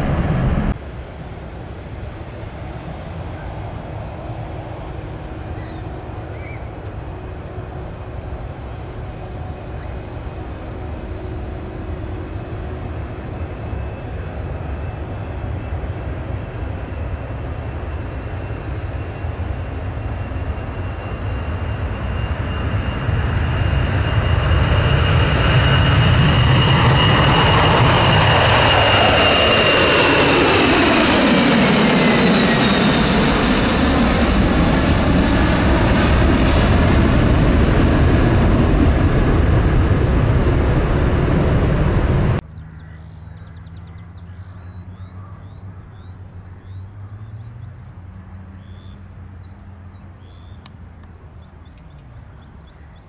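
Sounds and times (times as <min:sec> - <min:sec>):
jet engines roaring: 0:00.0 - 0:42.4
high jet engine whine: 0:00.0 - 0:53.0.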